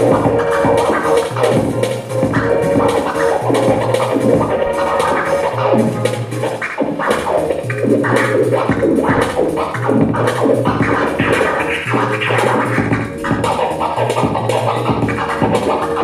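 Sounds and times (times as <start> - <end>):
music beat: 0.0 - 16.0
turntable scratching: 0.0 - 16.0.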